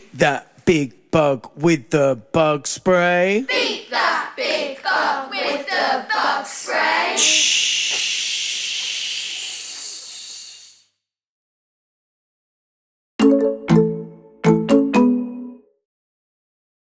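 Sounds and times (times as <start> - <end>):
voices chanting: 3.4 - 9.6
vocal shushing hiss: 7.0 - 11.0.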